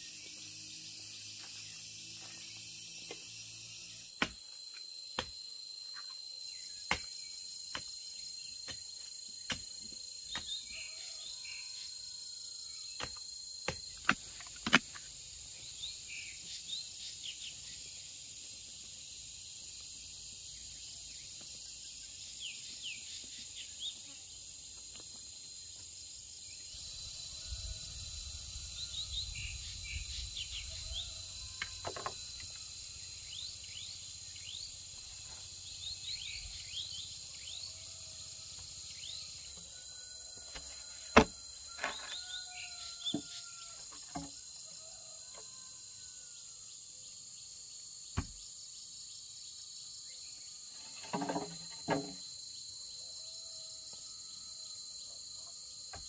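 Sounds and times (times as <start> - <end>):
insects buzzing: 0.0 - 56.0
bamboo poles knocking: 40.5 - 42.2, 51.0 - 52.2.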